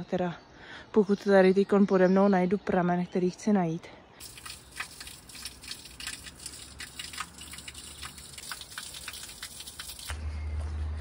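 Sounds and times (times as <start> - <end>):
water splashing onto drain grate: 4.2 - 10.1.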